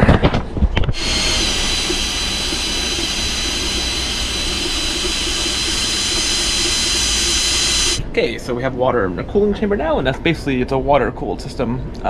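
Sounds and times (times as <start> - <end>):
cordless drill pump whining: 0.9 - 8.0.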